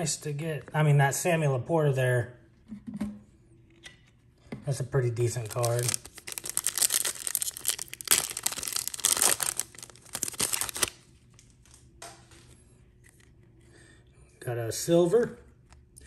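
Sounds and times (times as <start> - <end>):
foil wrapper tearing and crinkling: 5.3 - 11.1.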